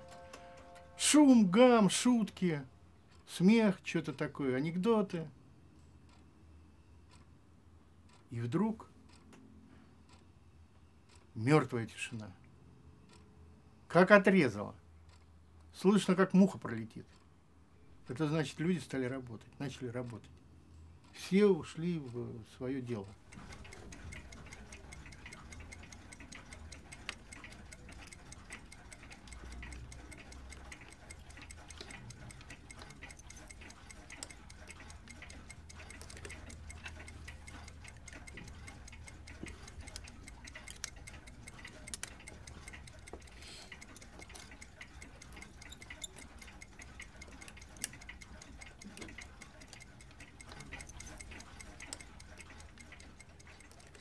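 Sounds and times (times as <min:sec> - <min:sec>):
clocks ticking: 0:00.0 - 0:05.3, 0:21.0 - 0:54.0
sharp clicks: 0:23.0 - 0:54.0.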